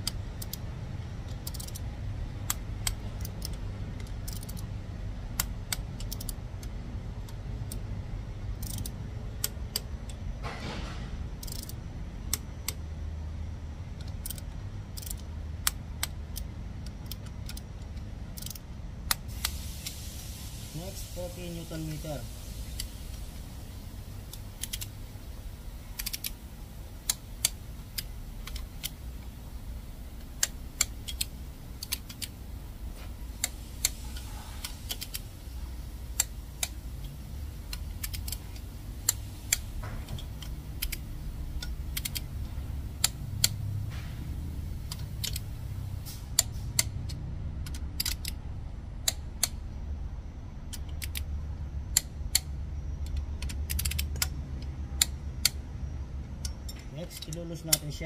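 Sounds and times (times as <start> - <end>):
torque wrench clicking: 0.0 - 0.6, 1.3 - 1.8, 2.5 - 4.7, 5.4 - 6.7, 8.5 - 9.9, 11.4 - 12.8, 14.0 - 17.7, 18.3 - 20.0, 24.3 - 24.9, 26.0 - 26.4, 30.2 - 32.3, 36.2 - 41.0, 41.6 - 43.6, 51.9 - 54.3
low steady hum: 0.0 - 58.0.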